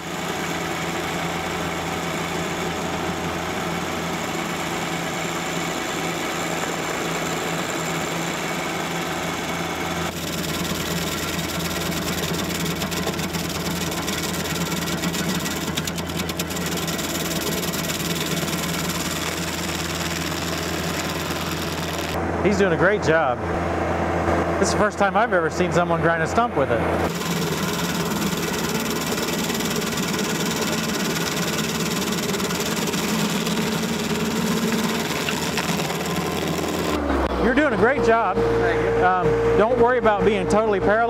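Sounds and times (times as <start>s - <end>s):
stump grinder chewing stump: 0.0s - 22.2s, 27.0s - 37.9s
tractor diesel engine running: 0.0s - 41.0s.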